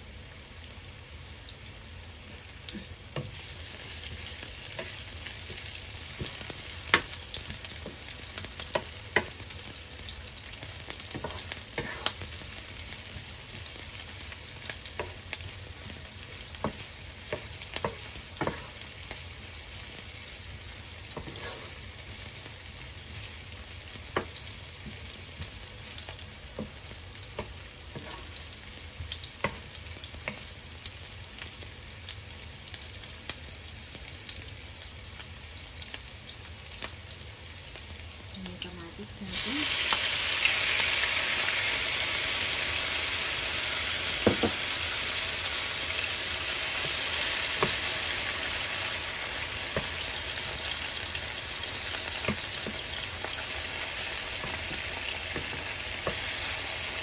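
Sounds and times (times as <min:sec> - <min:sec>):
onions sizzling in oil: 0:00.0 - 0:57.0
spatula stirring in pan: 0:02.7 - 0:30.6, 0:44.2 - 0:57.0.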